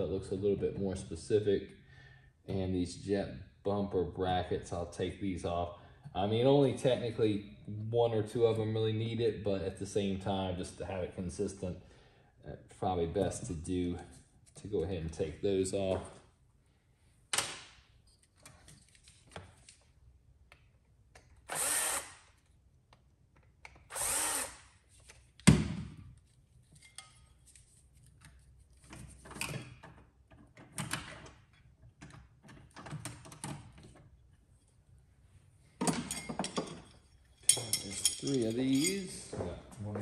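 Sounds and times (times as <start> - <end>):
cordless drill spinning: 21.5 - 22.2, 23.9 - 24.7
loose parts rattling: 35.8 - 39.3.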